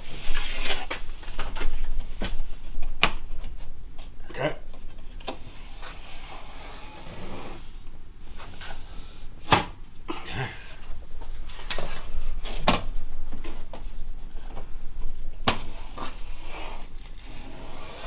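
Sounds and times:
t-square scraping on drywall: 5.4s - 7.7s, 15.6s - 18.0s.

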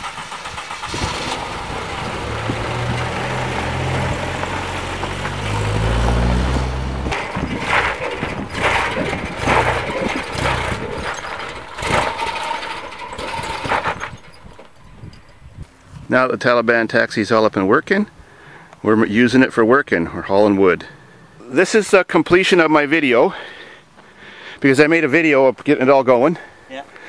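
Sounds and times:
truck engine running: 0.0s - 15.3s.

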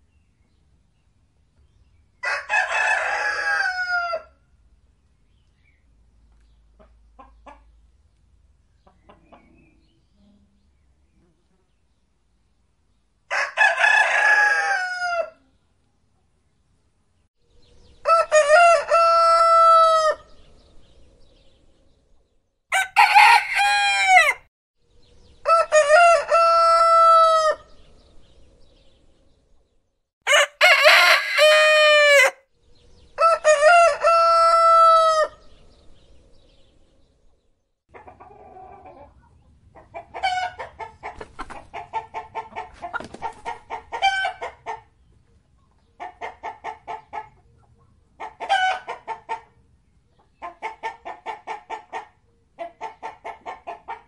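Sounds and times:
rooster crowing: 2.2s - 4.3s, 22.7s - 24.4s, 30.3s - 32.4s, 33.2s - 35.3s
rapid clucking calls: 39.9s - 44.9s.

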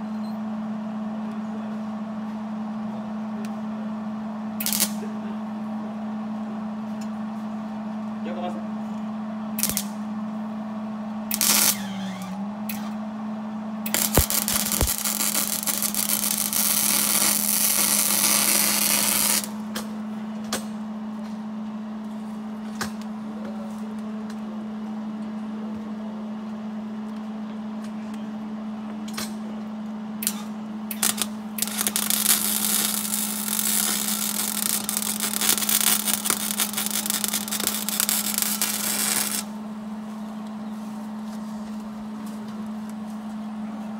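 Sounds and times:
steady hum: 0.0s - 43.9s
crackling welding arc: 4.6s - 5.1s, 9.6s - 10.0s, 11.3s - 12.9s, 13.9s - 19.6s, 30.2s - 39.6s.

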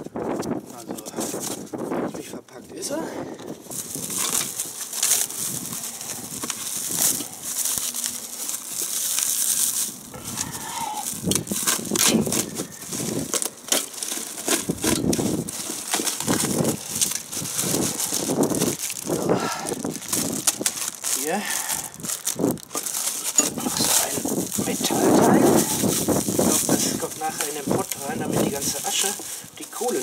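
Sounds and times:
plastic wrap crinkling: 3.4s - 30.0s.

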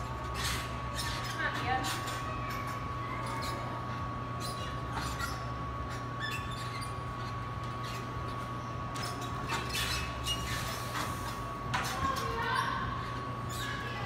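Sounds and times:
gymnastics bars creaking and clicking: 0.0s - 14.0s.

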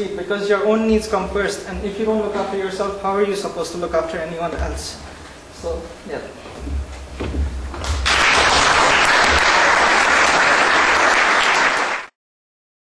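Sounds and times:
audience applauding: 7.8s - 12.2s.

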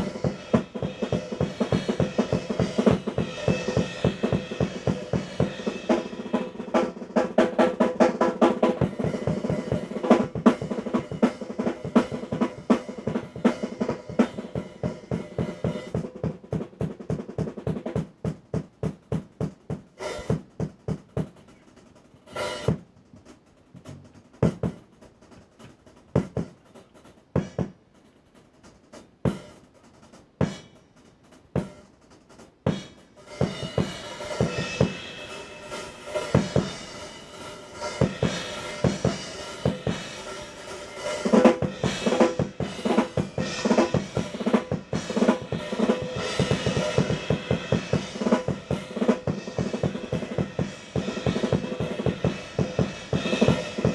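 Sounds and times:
cymbal crash: 0.0s - 6.6s, 32.7s - 53.9s
drum rolls: 0.0s - 53.9s.

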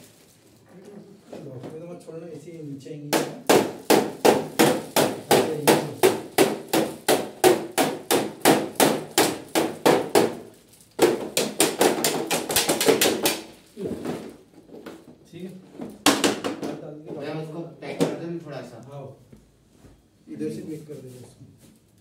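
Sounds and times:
knocking on plastic casing: 11.0s - 13.4s, 15.9s - 16.8s.

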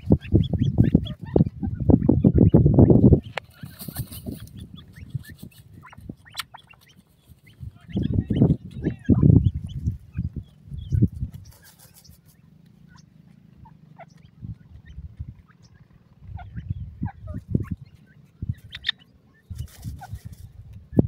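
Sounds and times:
faint bird chirps: 0.0s - 21.0s
birds fluttering wings in dust: 3.1s - 7.8s, 8.4s - 12.9s, 19.4s - 20.7s.

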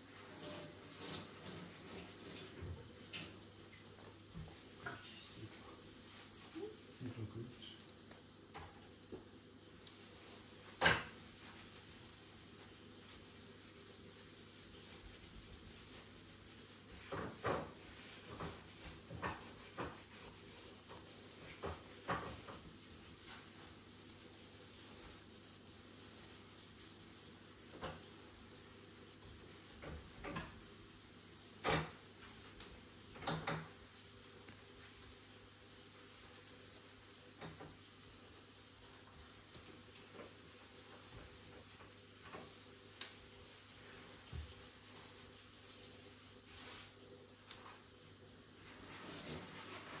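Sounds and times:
wiping rub: 4.0s - 7.3s, 9.8s - 47.9s, 48.5s - 50.0s.

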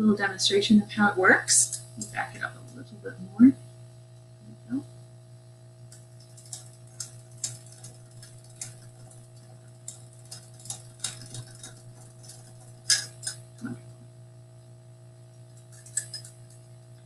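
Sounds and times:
wind-up toy mechanism clicking: 5.9s - 9.2s, 9.8s - 13.4s.

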